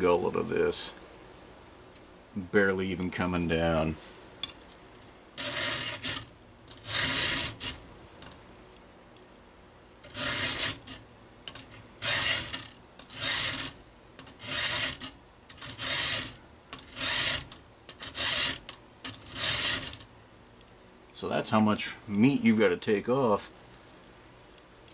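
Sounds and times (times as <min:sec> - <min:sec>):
file rasping on chainsaw tooth: 0:05.4 - 0:07.8, 0:10.1 - 0:11.0, 0:12.0 - 0:13.8, 0:14.4 - 0:18.6, 0:19.2 - 0:20.0.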